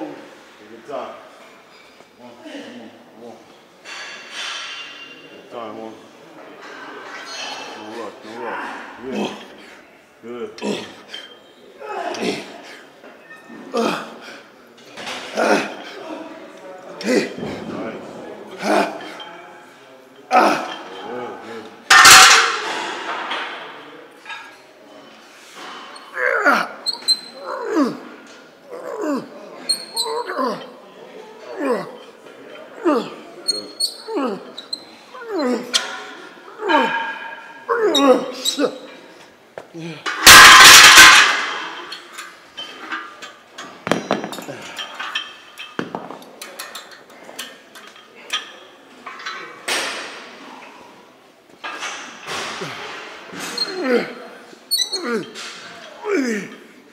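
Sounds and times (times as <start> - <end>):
metal barbell plates clanking: 21.9 - 23.3, 40.1 - 43.3.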